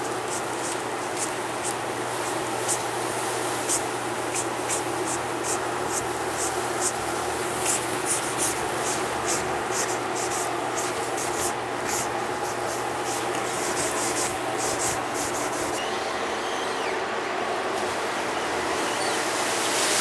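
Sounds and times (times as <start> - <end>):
abrasive pad rubbing: 7.6 - 15.8.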